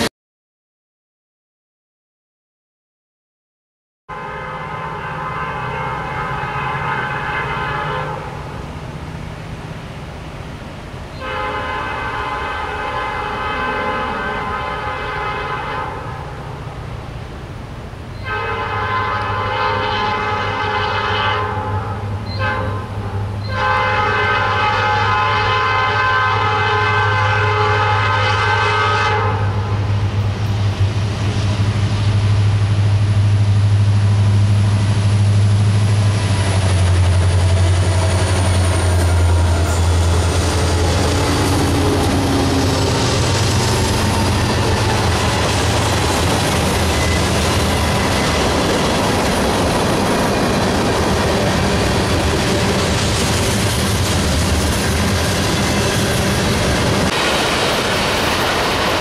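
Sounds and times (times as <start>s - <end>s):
train air horn blasts: 4.1s - 8.6s, 11.2s - 16.4s, 18.2s - 29.9s, 37.3s - 43.1s
diesel locomotive engines: 4.1s - 59.0s
steel wheels rolling over rails: 30.7s - 59.0s.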